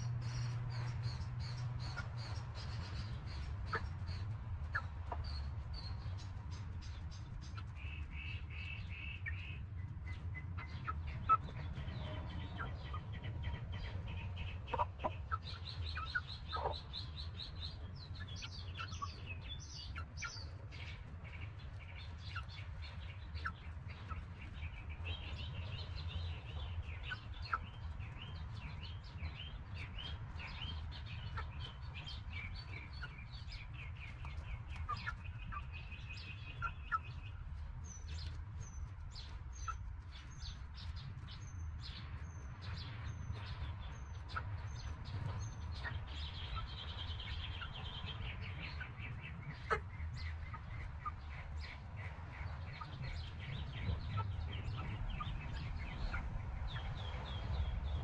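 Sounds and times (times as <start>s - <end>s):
hen clucking: 0.0s - 5.3s, 10.4s - 37.6s, 44.2s - 57.0s
birds chirping and trilling: 0.0s - 58.0s
chicks peeping: 0.0s - 58.0s
steady low rumble: 0.0s - 58.0s.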